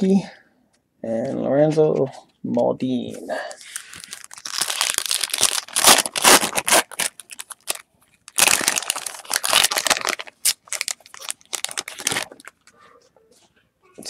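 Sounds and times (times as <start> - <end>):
foil wrapper crinkling: 3.6 - 12.7.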